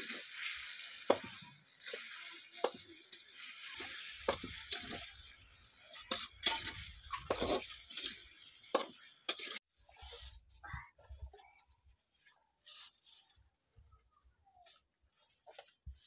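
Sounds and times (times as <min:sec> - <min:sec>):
spoon scraping food in metal pan: 0:00.0 - 0:10.3.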